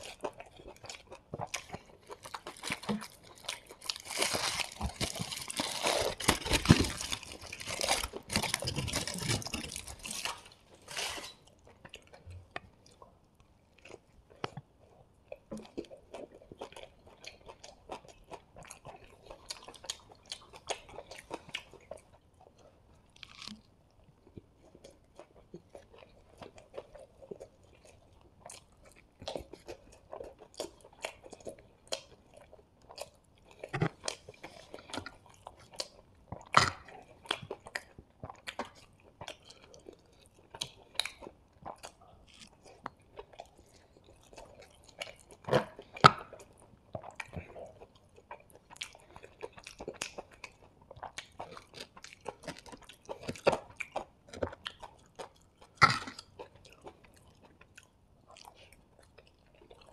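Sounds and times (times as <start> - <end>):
person chewing: 0.0 - 59.9.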